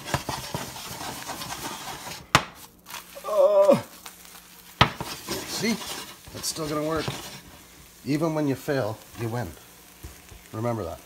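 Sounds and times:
eggs sizzling in a pan: 0.0s - 11.0s
scraping in a frying pan: 0.0s - 11.0s
person groaning: 3.2s - 4.0s.

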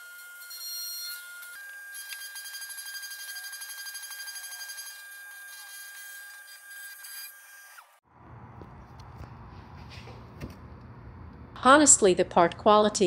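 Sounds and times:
router motor whining: 0.0s - 8.0s
low hum: 8.1s - 11.9s.

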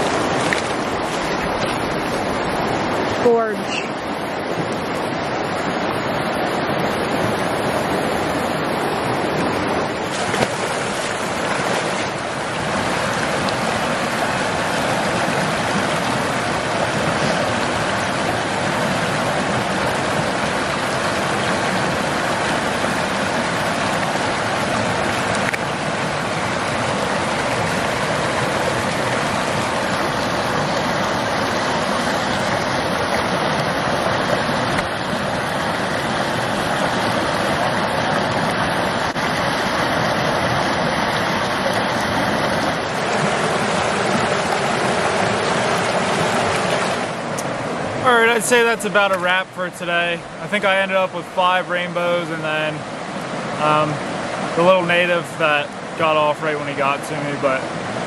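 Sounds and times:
stream water rushing over rocks: 0.0s - 58.0s.

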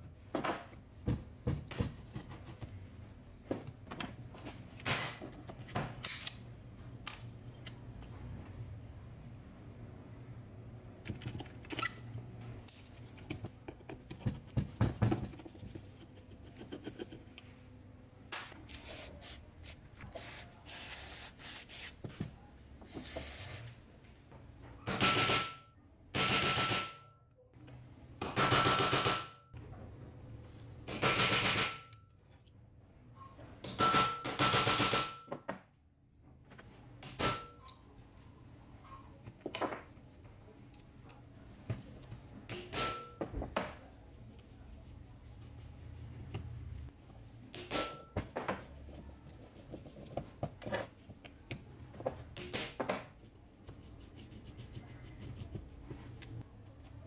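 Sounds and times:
workshop tool hissing: 18.7s - 22.0s, 22.9s - 23.8s.

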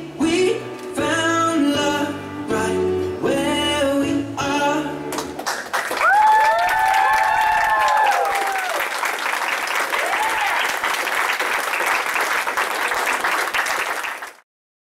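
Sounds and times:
audience clapping: 5.1s - 14.4s
people whooping and cheering: 5.9s - 9.1s, 9.8s - 11.0s.

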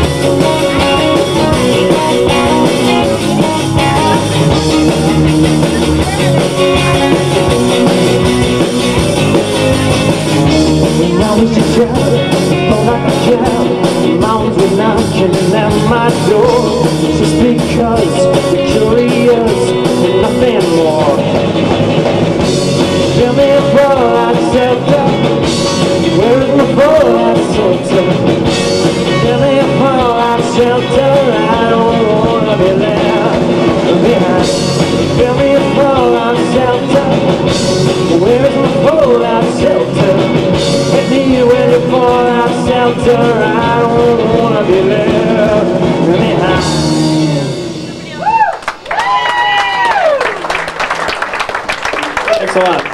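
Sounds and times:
live rock band playing: 0.0s - 52.9s.

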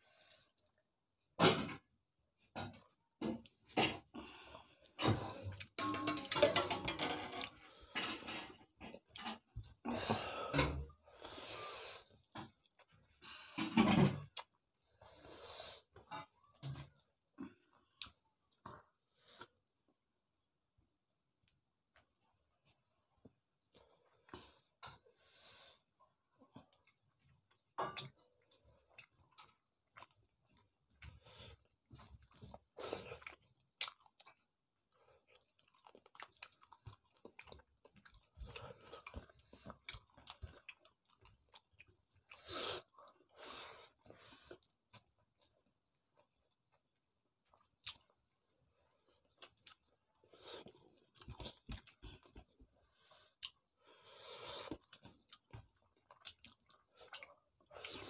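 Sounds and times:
chewing and mouth smacks: 17.9s - 19.5s, 26.0s - 53.8s, 54.5s - 58.0s
food crunching: 26.4s - 43.3s, 43.9s - 52.6s, 54.5s - 58.0s.

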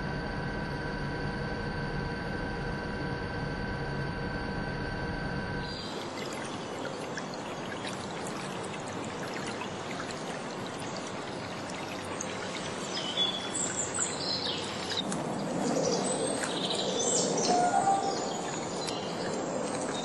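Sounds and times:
birds chirping: 5.6s - 20.0s
water spraying and hissing: 5.7s - 20.0s.

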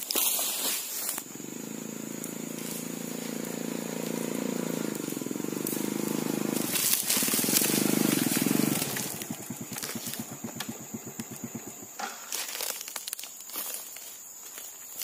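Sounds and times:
small motorbike engine idling: 1.0s - 12.6s.

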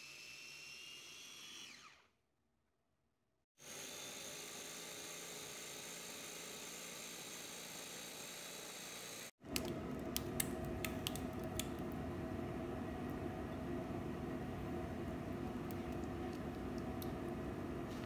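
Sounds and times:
blender motor running: 0.0s - 2.1s, 3.6s - 9.3s
steady low hum: 9.4s - 18.0s.

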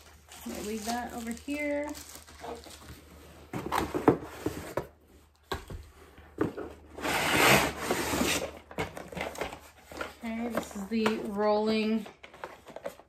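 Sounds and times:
packaging rustling: 0.0s - 5.8s
cardboard packaging knocks and scrapes: 3.4s - 10.7s.

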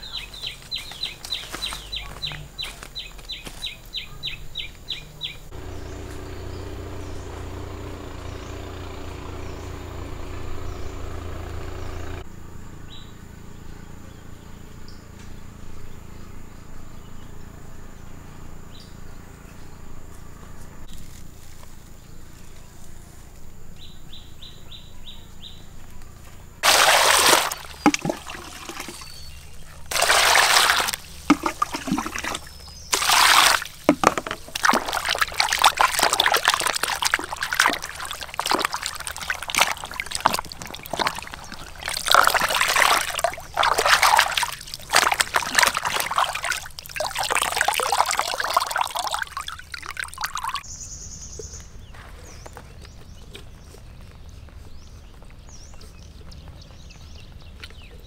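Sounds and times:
water poured into a basin: 26.6s - 50.6s
water splashing and sloshing: 26.6s - 50.6s.

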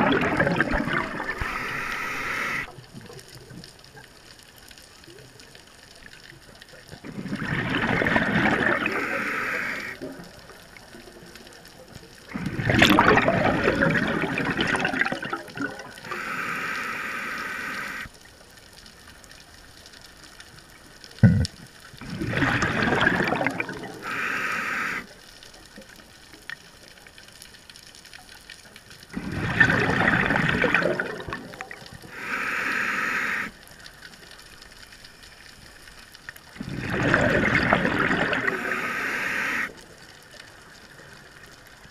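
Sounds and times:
exhaled bubbles rushing: 0.0s - 2.7s, 7.0s - 10.5s, 12.3s - 16.3s, 21.2s - 24.2s, 29.1s - 32.2s, 36.6s - 39.7s
regulator hissing on inhale: 1.2s - 2.7s, 8.7s - 10.0s, 16.0s - 18.1s, 23.9s - 25.2s, 32.0s - 33.6s, 38.4s - 39.8s.

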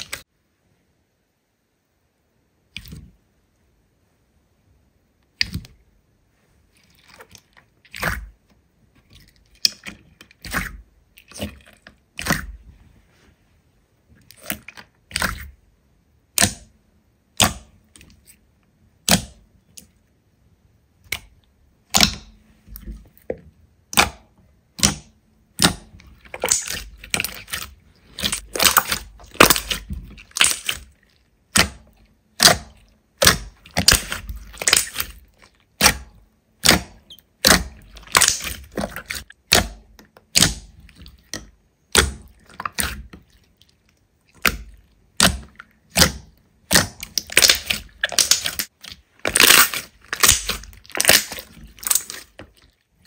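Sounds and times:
slime popping and clicking: 35.8s - 40.8s, 44.4s - 52.3s.

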